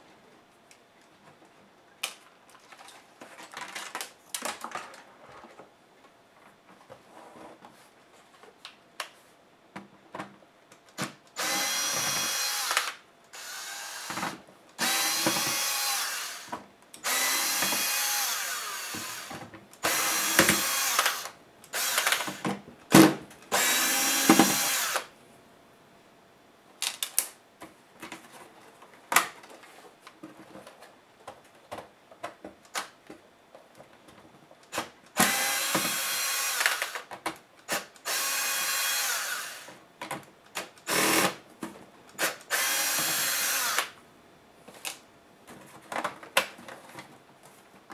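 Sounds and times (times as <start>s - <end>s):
power screwdriver running: 11.4s - 14.2s, 14.8s - 22.4s, 23.5s - 25.1s, 35.2s - 37.1s, 37.7s - 39.7s, 40.9s - 41.4s, 42.2s - 43.9s.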